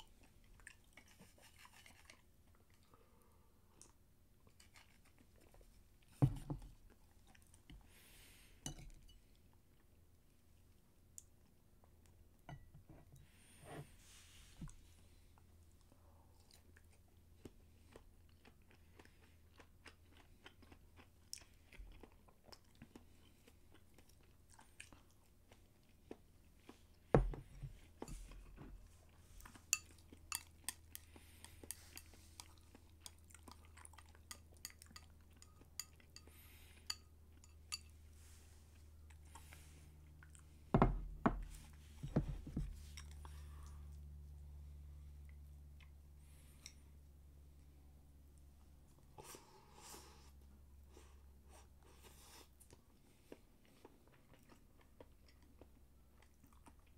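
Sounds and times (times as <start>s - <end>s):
person chewing food: 0.0s - 8.4s, 15.2s - 44.4s, 49.0s - 56.9s.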